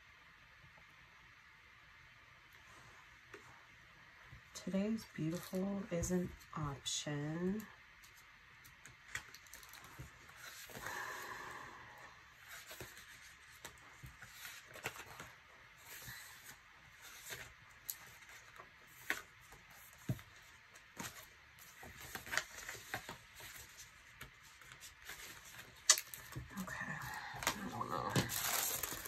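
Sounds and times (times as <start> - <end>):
paper pages rustling: 12.4 - 29.0.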